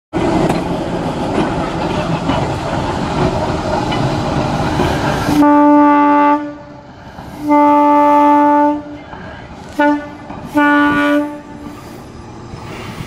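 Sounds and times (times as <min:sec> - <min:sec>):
wheels clicking on track: 0:00.2 - 0:05.4
locomotive engine running: 0:00.2 - 0:13.0
locomotive horn blast: 0:05.3 - 0:06.7, 0:07.4 - 0:09.0, 0:09.7 - 0:11.7.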